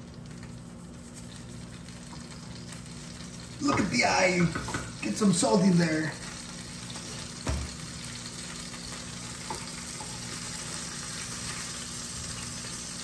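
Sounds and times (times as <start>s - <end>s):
fish sizzling in a pan: 0.0s - 13.0s
knock: 7.4s - 7.7s.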